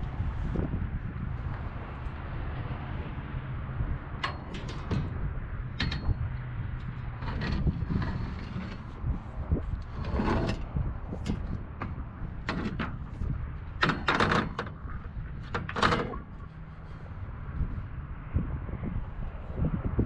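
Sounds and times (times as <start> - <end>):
wind rumble on microphone: 0.0 - 20.0
metal frame scraping on rack: 4.2 - 17.4.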